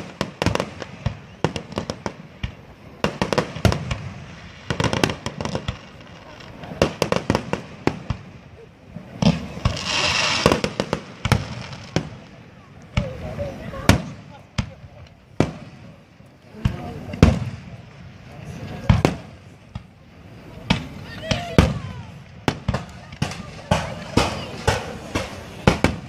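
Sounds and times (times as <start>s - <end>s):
firework crackling: 0.0s - 26.0s
firework shells bursting: 9.1s - 13.2s, 20.6s - 26.0s.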